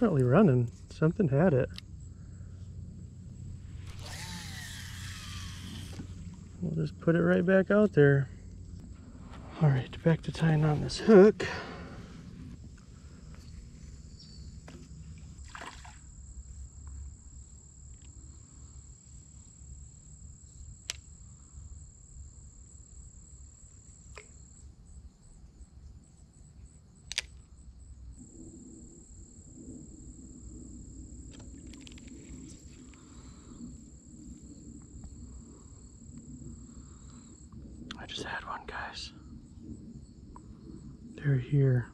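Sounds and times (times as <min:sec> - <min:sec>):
high-pitched insect drone: 0:01.6 - 0:08.6
sharp clicks: 0:27.1 - 0:27.4.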